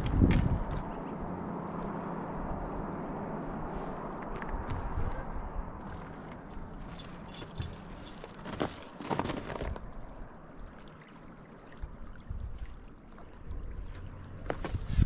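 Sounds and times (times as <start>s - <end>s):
low steady rumble: 0.0s - 8.9s.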